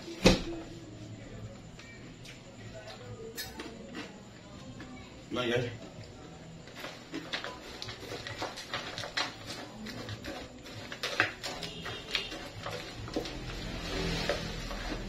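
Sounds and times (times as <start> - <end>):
spoon scraping plastic tub: 6.8 - 15.0.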